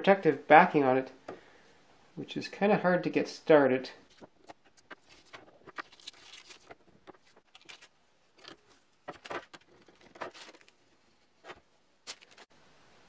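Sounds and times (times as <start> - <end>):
faint scratching and crackling: 4.0 - 12.5
paper backing peeling off: 4.4 - 10.8.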